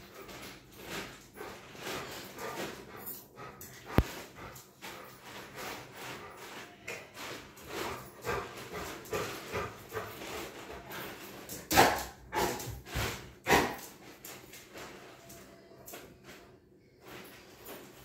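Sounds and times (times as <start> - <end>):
dog barking excitedly: 11.7 - 12.6.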